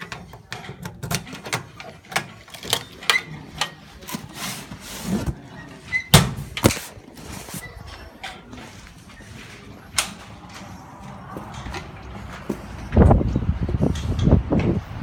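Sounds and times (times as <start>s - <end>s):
metal door squeaks: 5.4s - 6.6s.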